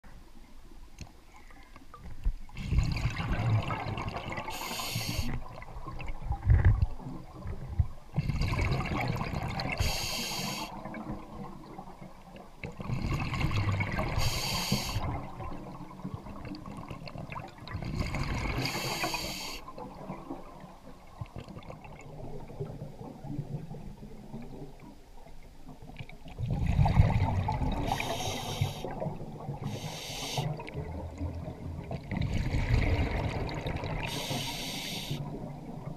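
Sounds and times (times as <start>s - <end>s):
exhaled bubbles gurgling: 2.4s - 25.0s, 25.7s - 35.9s
regulator hiss on inhale: 4.5s - 5.4s, 9.8s - 10.8s, 14.2s - 15.1s, 18.6s - 19.7s, 27.8s - 29.0s, 29.6s - 30.6s, 34.1s - 35.3s.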